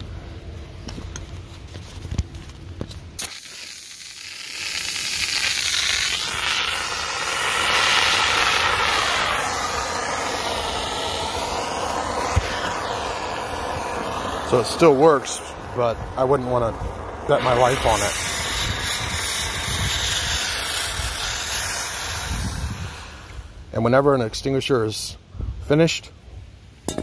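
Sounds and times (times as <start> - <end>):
fire extinguisher hissing spray: 3.2 - 16.4, 17.2 - 23.5.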